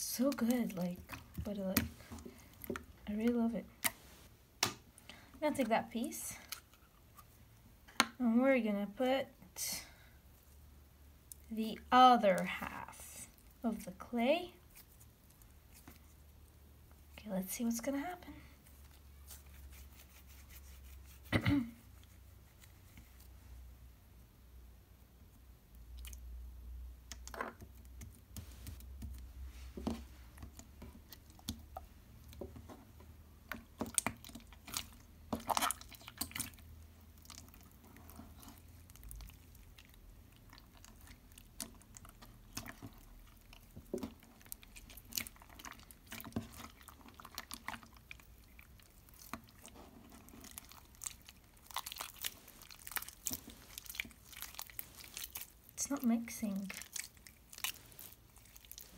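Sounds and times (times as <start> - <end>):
hands squishing slime: 0.0 - 7.3, 18.6 - 21.3, 27.0 - 58.9.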